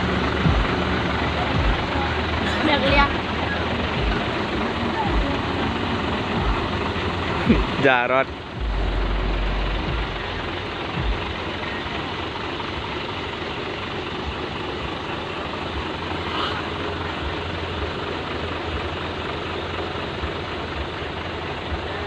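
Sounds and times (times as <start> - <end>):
truck diesel engine idling: 0.0 - 22.0.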